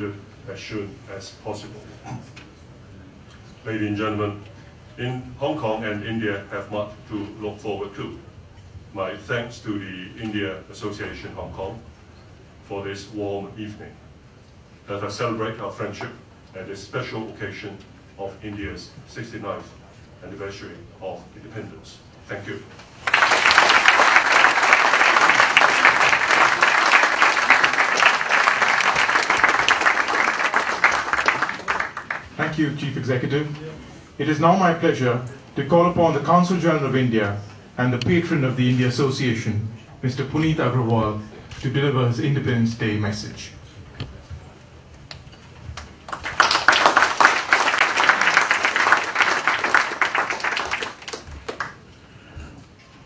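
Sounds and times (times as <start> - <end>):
audience applauding: 23.0 - 32.4, 45.8 - 51.9.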